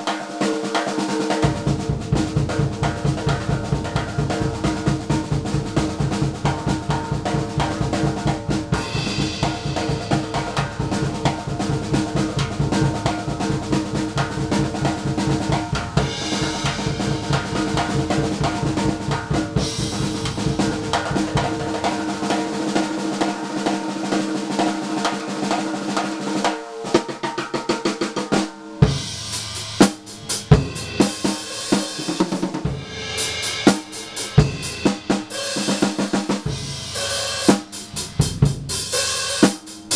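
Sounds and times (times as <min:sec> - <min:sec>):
drum rolls on snare and toms: 0:00.0 - 0:39.9
hard drum hits: 0:00.0 - 0:39.9
bass drum: 0:01.3 - 0:23.3, 0:28.8 - 0:39.9
cymbal crashes: 0:08.3 - 0:13.4, 0:15.6 - 0:22.7, 0:28.4 - 0:39.9.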